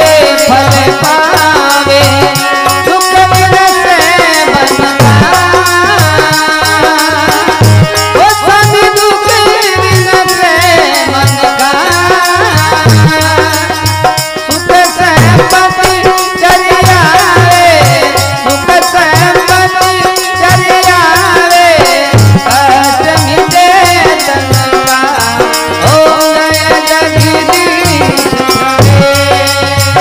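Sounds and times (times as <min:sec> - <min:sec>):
hand drum rhythm: 0:00.0 - 0:30.0
rattling percussion: 0:00.0 - 0:30.0.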